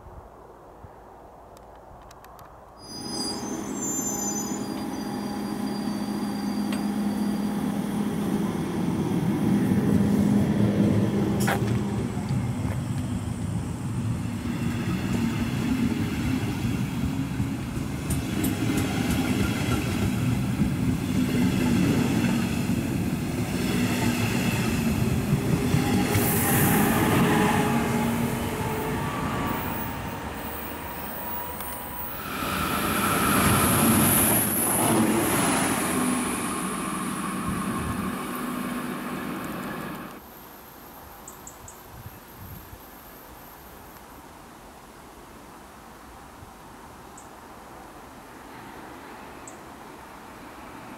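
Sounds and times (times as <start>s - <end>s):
high wheel squeal: 2.8s - 8.2s, 25.6s - 34.9s
train wheels rumbling on rail: 3.6s - 40.2s.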